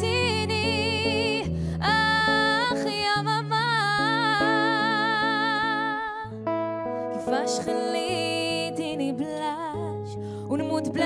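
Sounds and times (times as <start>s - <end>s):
woman singing with vibrato: 0.0s - 6.4s, 7.1s - 11.0s
acoustic guitar: 0.0s - 11.0s.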